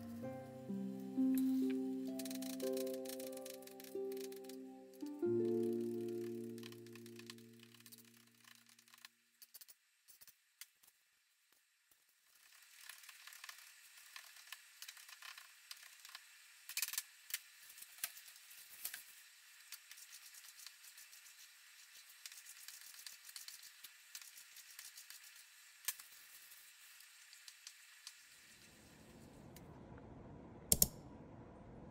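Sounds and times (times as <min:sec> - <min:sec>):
ticks and clicks: 0:01.3 - 0:08.2.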